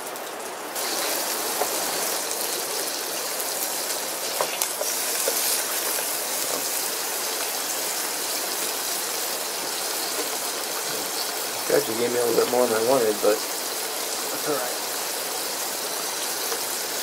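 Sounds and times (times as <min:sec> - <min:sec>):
ham sizzling in a pan: 0:00.0 - 0:17.0.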